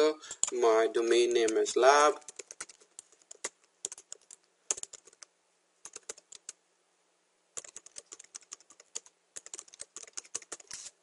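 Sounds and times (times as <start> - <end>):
typing on computer keyboard: 2.3 - 6.6, 7.6 - 10.9.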